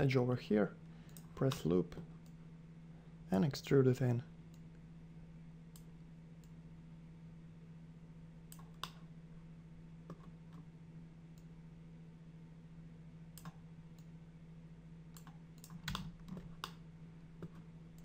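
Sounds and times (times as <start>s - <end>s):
steady low hum: 0.0s - 18.0s
computer mouse and keyboard clicks: 15.2s - 16.8s.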